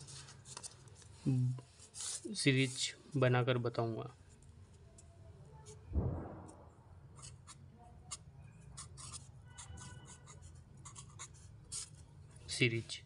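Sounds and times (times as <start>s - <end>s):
marker pen writing on whiteboard: 7.1s - 12.0s.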